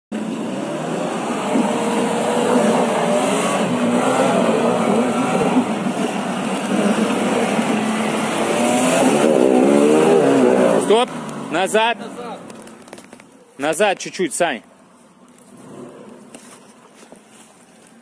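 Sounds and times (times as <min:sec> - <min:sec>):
suv engine revving: 0:00.1 - 0:13.2, 0:15.4 - 0:16.7.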